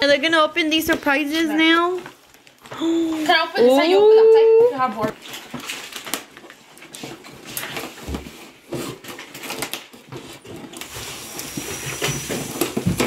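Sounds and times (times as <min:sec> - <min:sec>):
cardboard rustling and scraping: 0:05.0 - 0:13.0
cardboard being torn open: 0:07.1 - 0:13.0.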